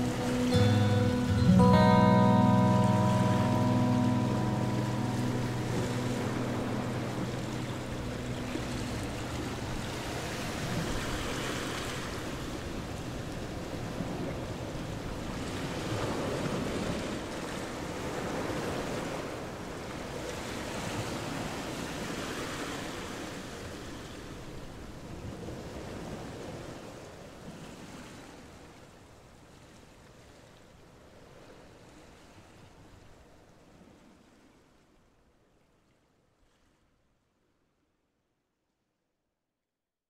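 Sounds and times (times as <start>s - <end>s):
background music: 0.0s - 11.0s
rushing wind or surf noise: 0.0s - 24.4s.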